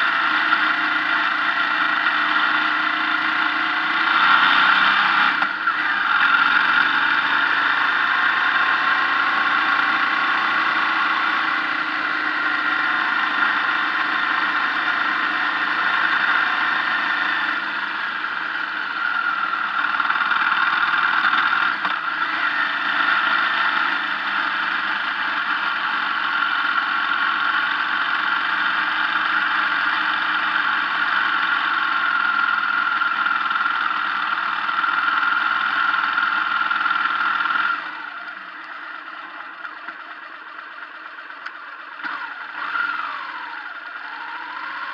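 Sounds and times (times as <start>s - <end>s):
motorcycle engine running: 0.0s - 44.9s
road and wind noise: 0.0s - 44.9s.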